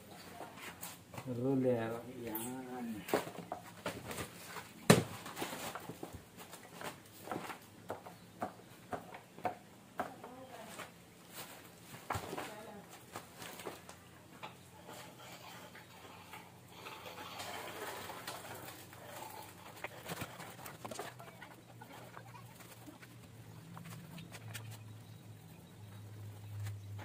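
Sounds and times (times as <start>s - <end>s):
paint roller on concrete wall: 10.1s - 25.0s.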